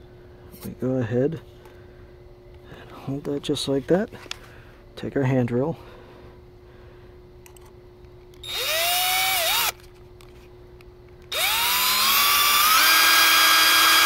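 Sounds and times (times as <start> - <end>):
electric drill whining: 8.4 - 9.8, 11.3 - 14.0.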